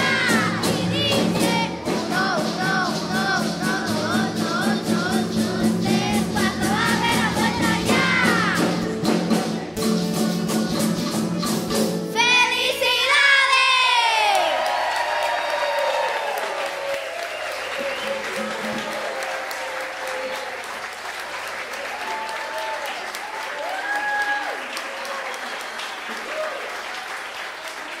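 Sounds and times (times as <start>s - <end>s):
crowd cheering and applause: 0.0s - 11.5s, 13.1s - 28.0s
band accompaniment: 0.0s - 13.2s, 17.1s - 20.5s
children's choir singing: 0.0s - 14.6s.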